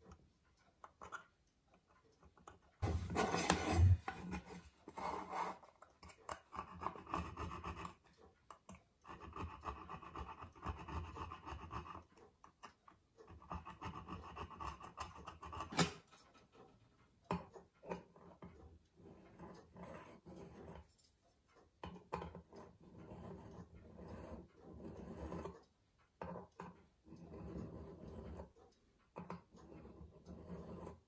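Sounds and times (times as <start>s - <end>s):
scraper scratching metal: 2.8s - 5.6s
hand file rasping on metal: 2.8s - 5.7s, 17.9s - 21.1s, 22.4s - 25.6s, 26.2s - 28.6s, 29.3s - 31.0s.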